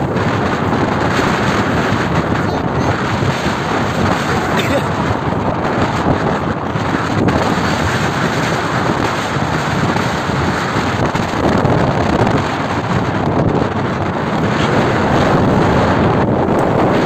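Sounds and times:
choppy sea water: 0:00.0 - 0:17.0
wind buffeting microphone: 0:00.0 - 0:17.0.

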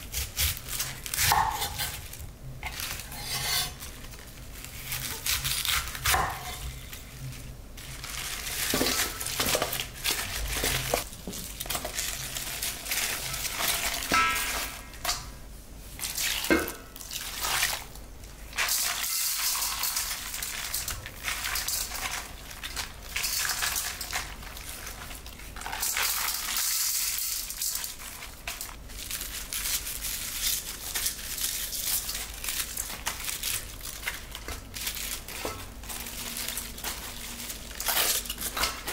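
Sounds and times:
cabbage leaves crackling: 0:00.0 - 0:15.1, 0:15.9 - 0:38.9.

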